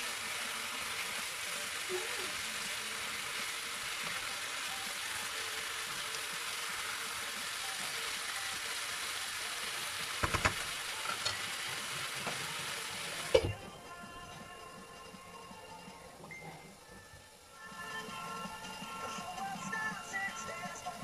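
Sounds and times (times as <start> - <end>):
chicken sizzling in oil: 0.0 - 21.0
loud knock: 10.2 - 10.6
spatula tapping pan: 10.2 - 11.4.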